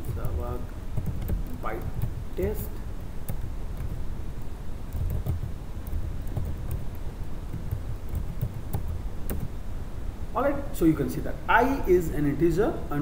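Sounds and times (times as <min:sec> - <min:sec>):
keyboard key clicks: 0:04.9 - 0:09.5.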